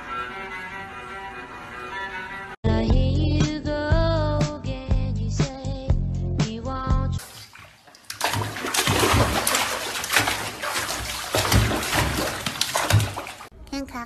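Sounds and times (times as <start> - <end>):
background music: 0.0 - 7.2
water splashing in a bathtub: 7.2 - 13.5.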